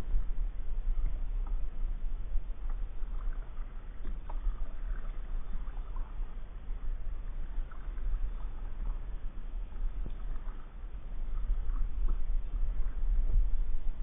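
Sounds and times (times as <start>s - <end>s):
steady low rumble: 0.0s - 14.0s
paddle splashing through water: 2.4s - 13.6s.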